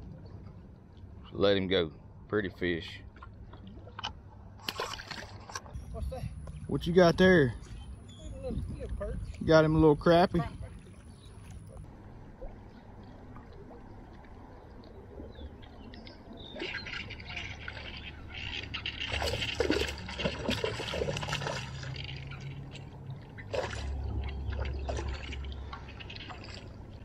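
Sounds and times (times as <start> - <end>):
fish splashing in water: 12.4 - 27.0.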